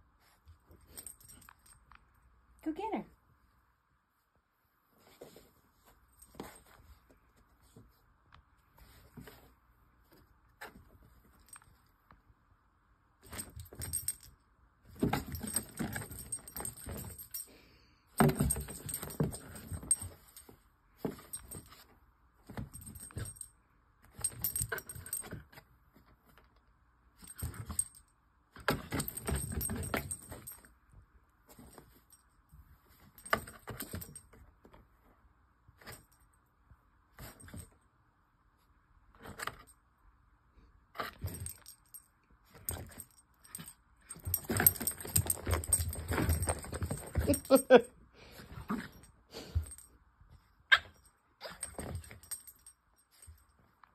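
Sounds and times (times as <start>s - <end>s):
dog collar jingling: 15.0s - 17.6s, 24.1s - 25.5s, 27.2s - 30.7s, 41.0s - 49.9s, 50.7s - 53.5s.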